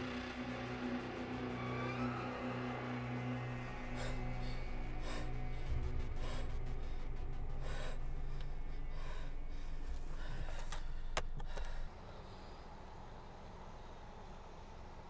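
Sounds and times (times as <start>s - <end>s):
woman gasping breaths: 3.8s - 12.5s.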